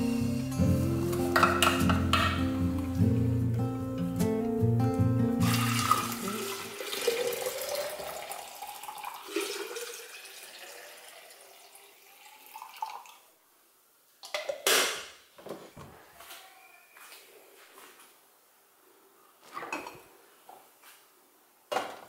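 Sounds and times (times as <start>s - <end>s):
liquid pouring and splashing: 5.4s - 13.3s.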